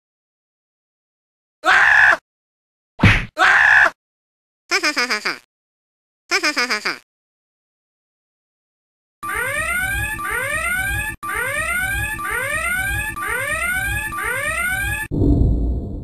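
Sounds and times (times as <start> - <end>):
whooping electronic alarm: 9.2 - 15.1.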